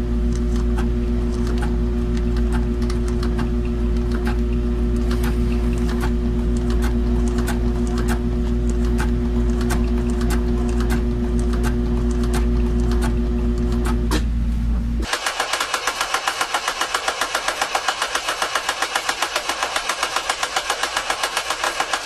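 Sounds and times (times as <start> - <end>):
sewing machine stitching leather: 15.0 - 22.0.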